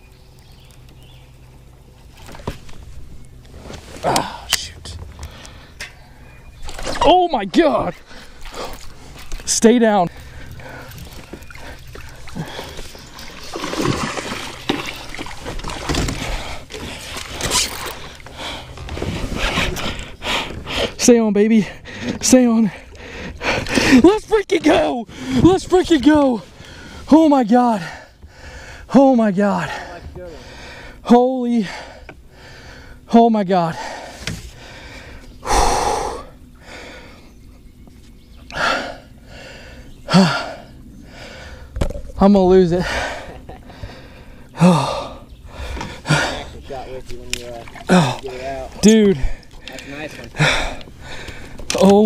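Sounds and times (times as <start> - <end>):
fish splashing in water: 10.2 - 18.2
man gasping and breathing hard: 33.8 - 37.2, 38.5 - 41.8, 42.8 - 46.6, 50.3 - 51.6.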